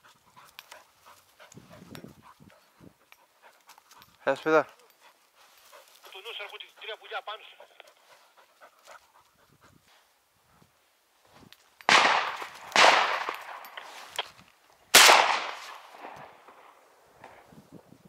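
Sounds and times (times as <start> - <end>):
shotgun shots echoing: 11.9 - 14.2, 14.9 - 16.8.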